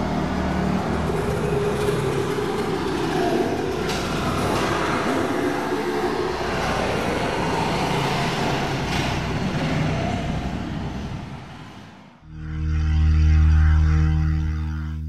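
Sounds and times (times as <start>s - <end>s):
dirt bike engines revving: 0.0s - 11.8s.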